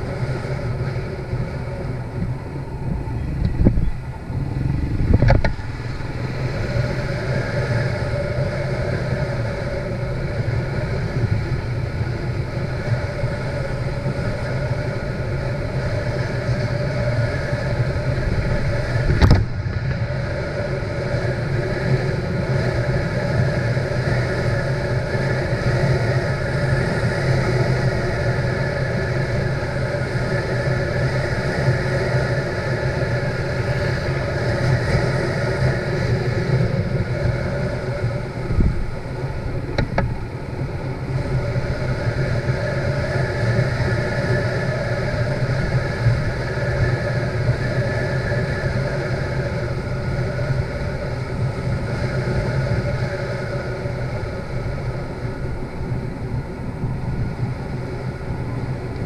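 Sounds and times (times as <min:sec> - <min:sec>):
motorcycle engine running: 0:00.0 - 0:44.4
road and wind noise: 0:00.0 - 0:59.0
brief knock: 0:19.1 - 0:19.5.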